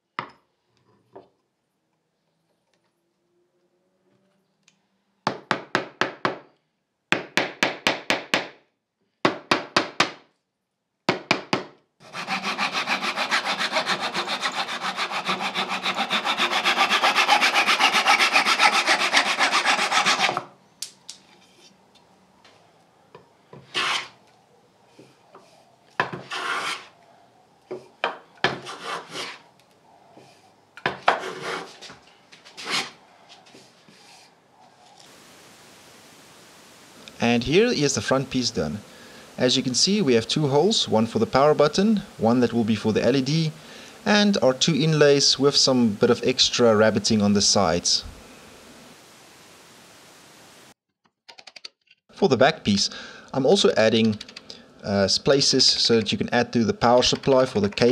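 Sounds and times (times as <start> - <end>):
hand plane strokes on wood: 12.0 - 20.5, 23.6 - 24.2, 26.2 - 26.9, 28.5 - 29.4, 31.0 - 31.9, 32.5 - 34.0
hand saw cutting wood: 12.0 - 20.5, 23.7 - 24.2, 26.2 - 26.9, 28.5 - 29.4, 31.0 - 31.8, 32.6 - 33.0.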